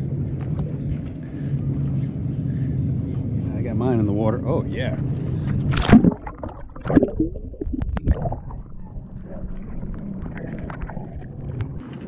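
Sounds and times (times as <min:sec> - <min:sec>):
water splashes: 0:05.5 - 0:11.8.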